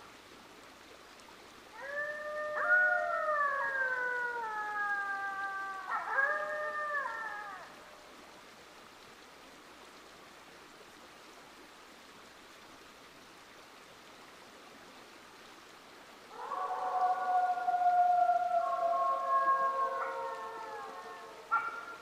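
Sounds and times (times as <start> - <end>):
faint steady hiss: 0.0 - 22.0
wolves howling: 1.8 - 7.8, 16.3 - 22.0.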